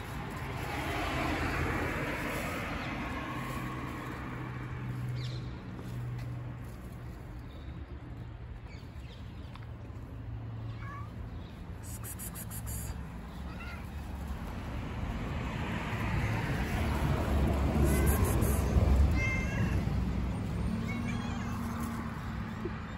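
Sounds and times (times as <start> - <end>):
cat meowing: 10.7 - 11.2, 17.8 - 20.0.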